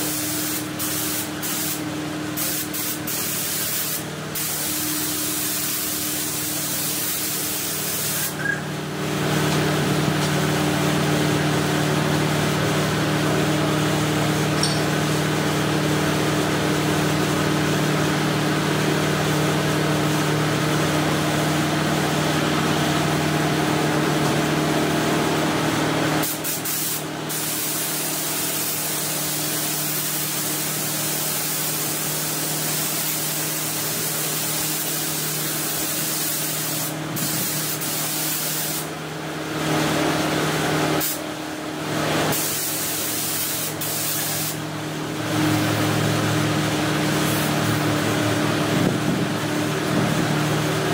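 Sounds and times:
paint spray gun hissing: 0.0 - 8.5, 26.2 - 39.0, 41.0 - 41.3, 42.3 - 44.7.

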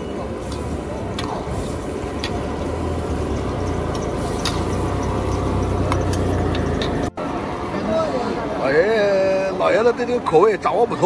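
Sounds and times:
food bubbling and sizzling in a wok: 0.0 - 7.6.

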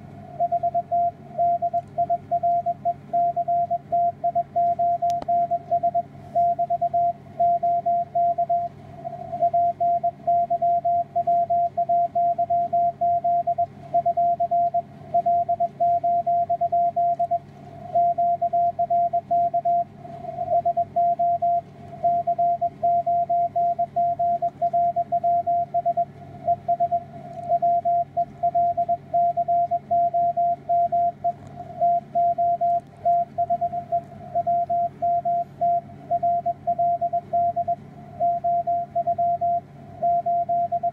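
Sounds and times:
low steady hum: 0.0 - 40.9
morse code tone: 0.4 - 40.9
faint radio hiss: 5.5 - 7.6.

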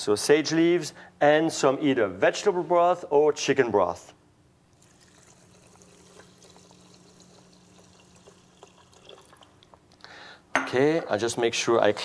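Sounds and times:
liquid pouring: 4.7 - 9.8.

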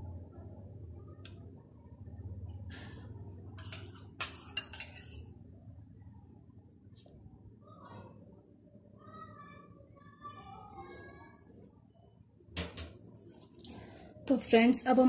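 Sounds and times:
metal spoon clinking on glass: 3.6 - 5.2.

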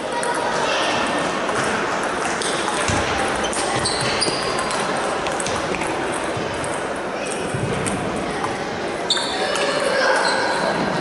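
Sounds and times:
din of voices and play: 0.0 - 11.0
table tennis balls clicking: 1.4 - 8.6.

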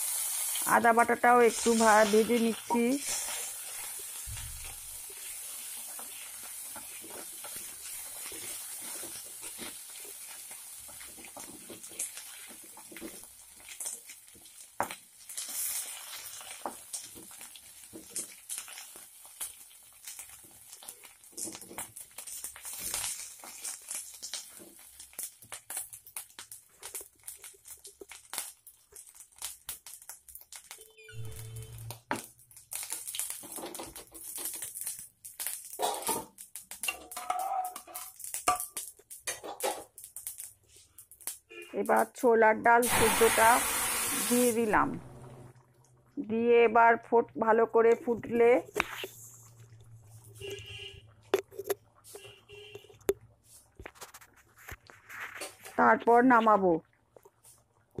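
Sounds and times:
paste sizzling in hot oil: 0.0 - 41.4, 42.7 - 45.6
oil popping and crackling: 0.0 - 42.2, 42.8 - 58.0.

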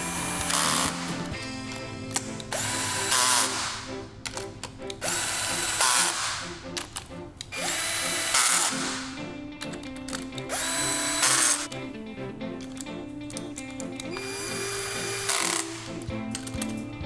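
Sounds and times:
cordless drill driving bolts: 0.0 - 11.8, 12.6 - 16.7.

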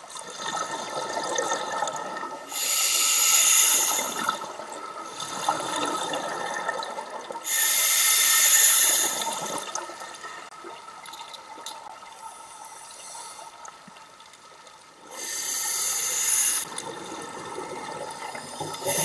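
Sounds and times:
breathing underwater: 2.5 - 4.4, 7.4 - 9.8, 15.1 - 16.8, 18.3 - 19.0.

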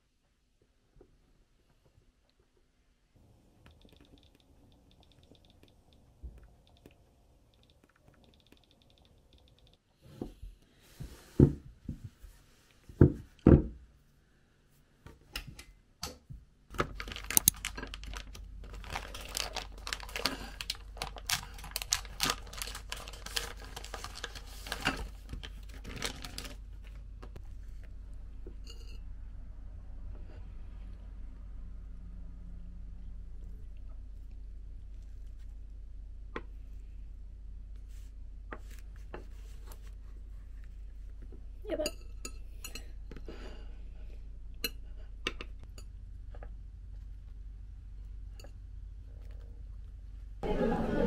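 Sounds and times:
low steady hum: 0.0 - 51.0
dense clicking and rustling: 16.7 - 27.8.

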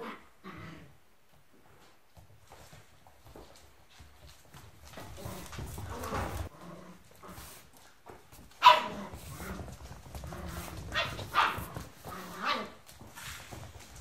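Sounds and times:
dog barking: 8.6 - 9.0, 11.0 - 11.7.

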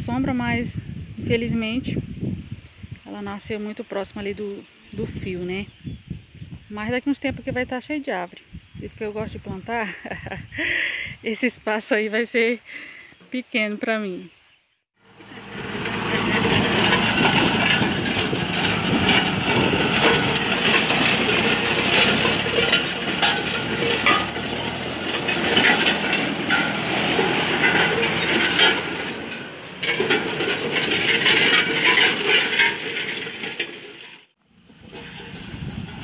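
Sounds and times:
harrow discs clanking: 15.0 - 36.0
tractor engine hum: 15.0 - 36.0.

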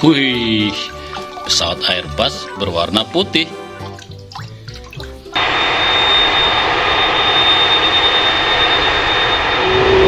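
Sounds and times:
high engine whine: 5.4 - 10.0
jet engines roaring: 5.4 - 10.0
low rising tone: 5.4 - 10.0.

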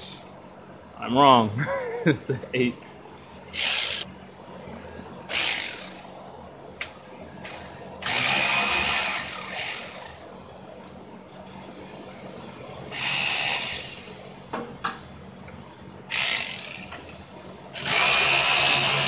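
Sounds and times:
ratchet spinning bolts out: 0.0 - 0.6, 3.6 - 4.1, 5.3 - 6.4, 7.4 - 10.4, 16.1 - 17.2, 17.8 - 19.0.

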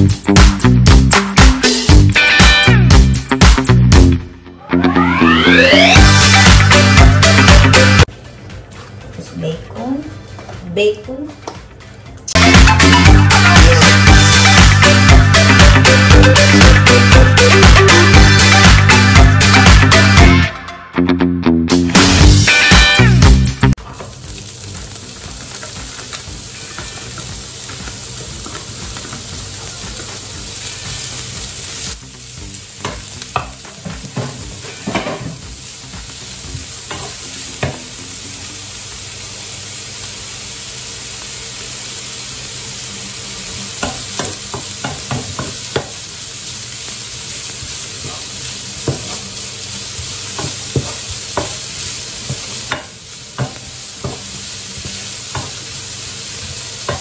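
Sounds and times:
bacon sizzling in a frying pan: 22.1 - 57.0.

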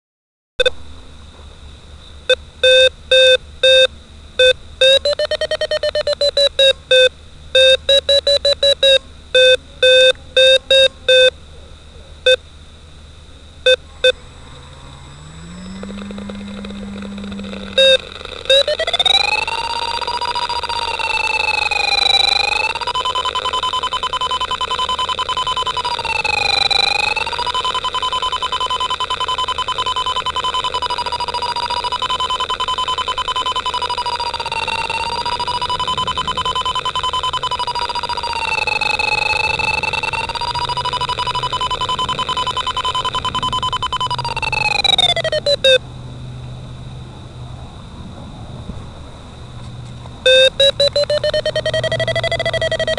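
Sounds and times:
electronic beeps: 0.6 - 0.8, 2.3 - 11.3, 13.6 - 14.3, 15.1 - 45.8, 50.2 - 52.9
low hum: 0.6 - 28.0, 29.0 - 52.9
steady high electronic tone: 13.6 - 27.8, 28.4 - 45.8, 50.2 - 52.9.

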